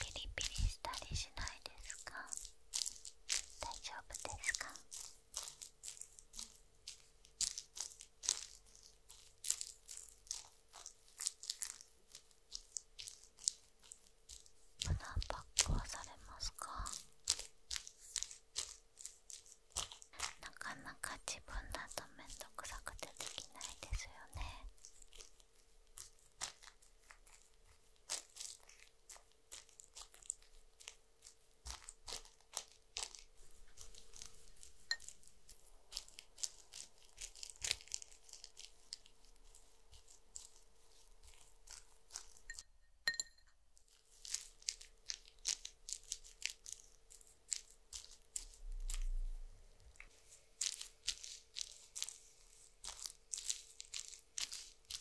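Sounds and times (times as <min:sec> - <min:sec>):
brush spreading sticky gel: 0:00.0 - 0:42.6, 0:43.8 - 0:55.0.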